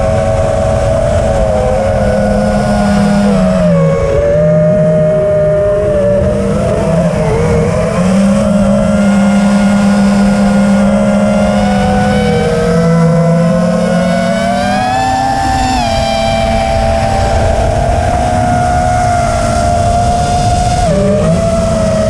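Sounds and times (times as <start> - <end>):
drone motors whining: 0.0 - 22.0
wind rumble on microphone: 0.0 - 22.0.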